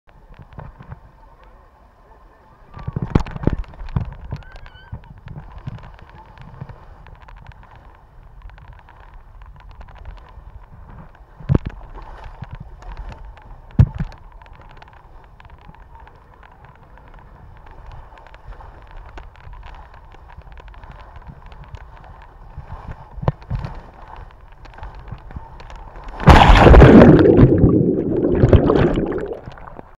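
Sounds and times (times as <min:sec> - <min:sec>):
underwater bubbling: 0:25.4 - 0:30.0
water rushing down slide: 0:26.0 - 0:29.9
loud splash into pool: 0:26.2 - 0:29.5.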